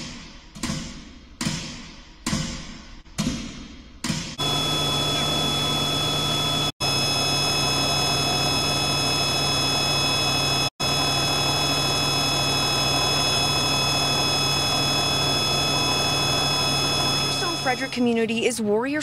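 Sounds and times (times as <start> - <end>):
helicopter engine and rotor: 4.4 - 18.2.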